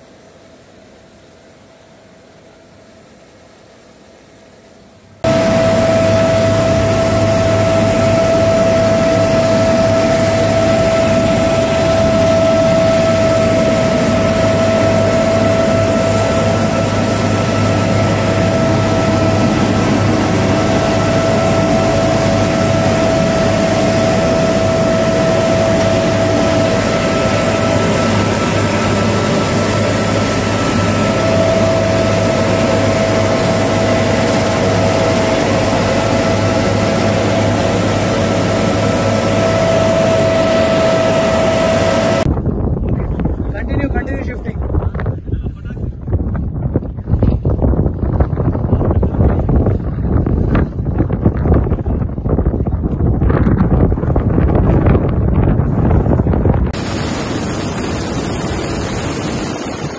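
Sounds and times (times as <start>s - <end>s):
high whine: 5.0s - 45.1s, 47.2s - 59.9s
helicopter engines and rotor din: 5.2s - 42.4s, 48.4s - 59.9s.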